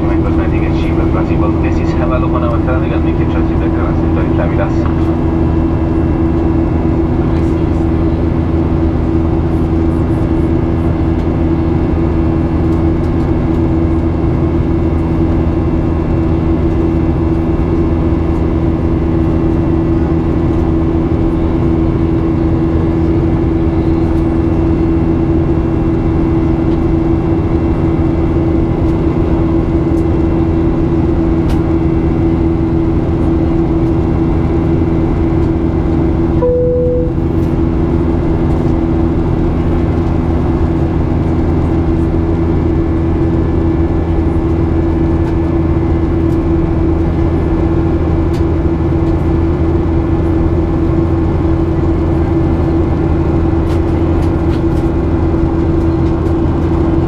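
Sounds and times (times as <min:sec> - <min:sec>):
airplane cabin engine drone: 0:00.0 - 0:57.0
brief steady tone: 0:36.4 - 0:37.7.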